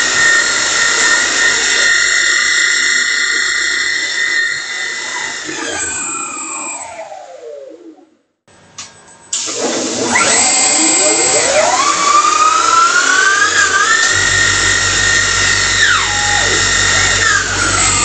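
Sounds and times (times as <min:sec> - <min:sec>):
lathe spindle whining: 0:00.0 - 0:08.0, 0:09.4 - 0:18.0
low hum: 0:11.4 - 0:18.0.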